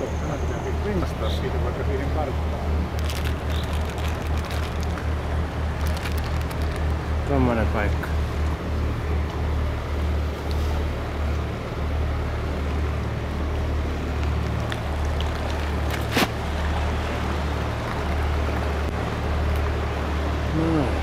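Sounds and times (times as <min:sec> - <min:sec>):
boat engine humming: 0:00.0 - 0:21.0
water and wind noise: 0:00.0 - 0:21.0.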